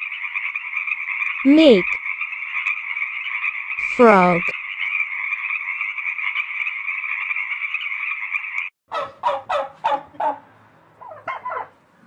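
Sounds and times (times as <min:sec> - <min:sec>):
turkey gobbling: 0:08.9 - 0:10.4, 0:11.0 - 0:11.7.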